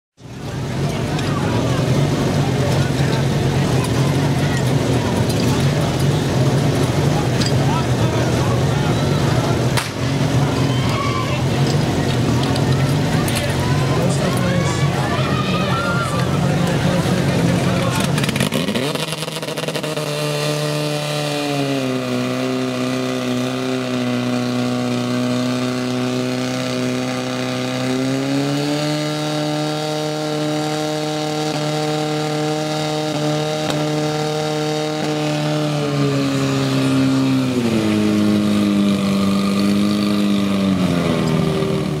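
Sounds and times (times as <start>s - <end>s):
fire pump engine running: 0.2s - 42.0s.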